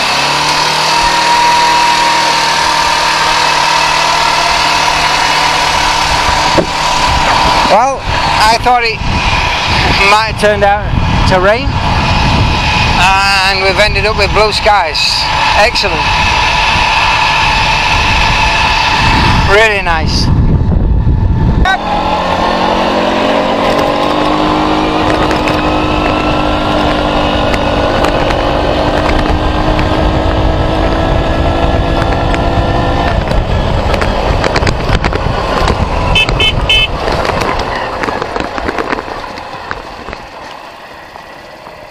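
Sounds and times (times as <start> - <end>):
quad bike engine running: 21.6 - 40.4.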